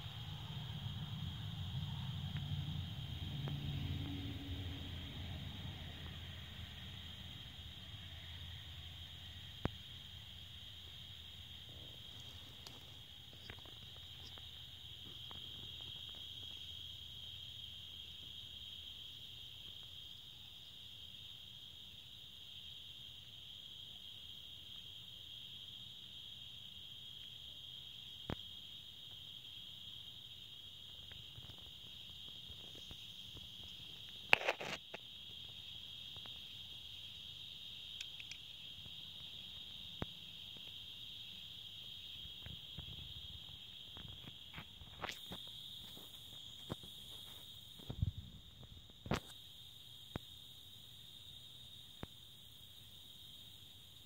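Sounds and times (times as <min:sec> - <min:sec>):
night insects chorus: 0:00.0 - 0:54.0.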